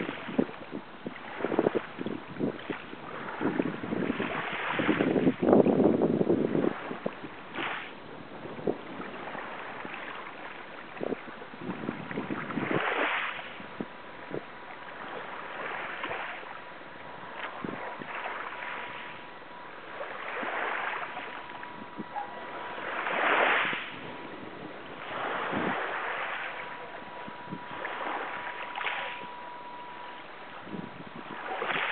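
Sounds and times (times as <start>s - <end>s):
small waves washing in: 0.0s - 31.9s
faint high tone: 21.0s - 23.3s, 23.9s - 31.9s.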